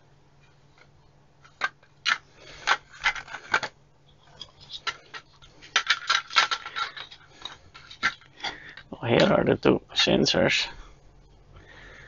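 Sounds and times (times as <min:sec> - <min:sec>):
plastic parts clicking and scraping: 0:00.4 - 0:09.4.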